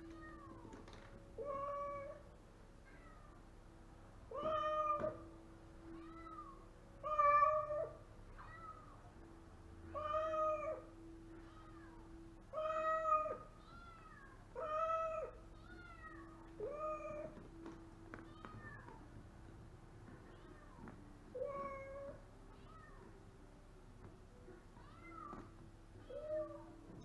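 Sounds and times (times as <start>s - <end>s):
cat meowing: 1.4s - 2.2s, 4.3s - 5.2s, 5.9s - 9.0s, 10.0s - 17.4s, 18.2s - 19.0s, 20.2s - 23.1s, 24.8s - 27.0s.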